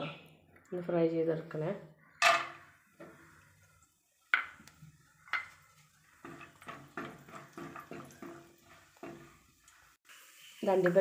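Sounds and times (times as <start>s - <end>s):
nuts frying in fat: 2.0s - 11.0s
spoon knocking and scraping in pan: 2.2s - 10.0s.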